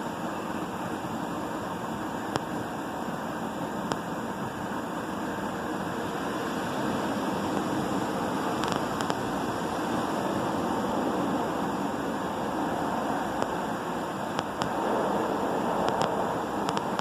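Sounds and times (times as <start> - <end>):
car wash brushes and water spray: 3.4 - 17.0
sharp ticks: 8.6 - 9.4, 13.3 - 14.8, 15.8 - 17.0.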